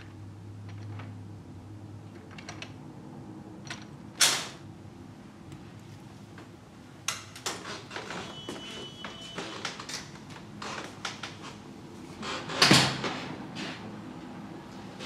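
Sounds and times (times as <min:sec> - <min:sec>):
door squeak: 0:07.6 - 0:09.9
door shutting: 0:12.2 - 0:13.2.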